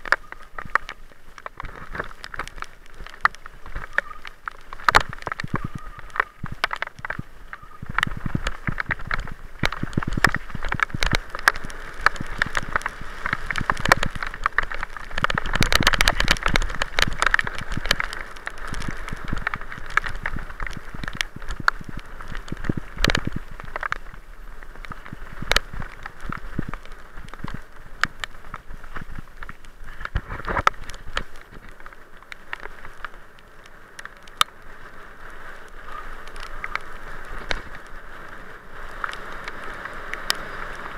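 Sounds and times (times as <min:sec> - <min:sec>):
bicycle tyres rolling on gravel: 0:00.0 - 0:40.9.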